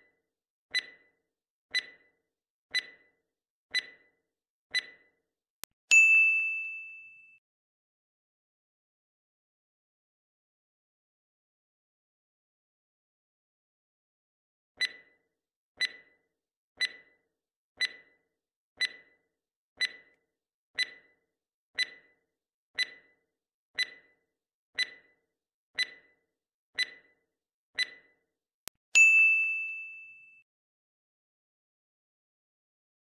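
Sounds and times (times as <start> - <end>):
clock-like ticking: 0.7 - 5.2, 14.8 - 15.2, 15.8 - 16.2, 16.8 - 17.2, 17.8 - 18.2, 18.8 - 19.2, 19.8 - 20.2, 20.8 - 21.2, 21.8 - 22.2, 22.8 - 28.2
loud bell-like ding: 29.0 - 30.4.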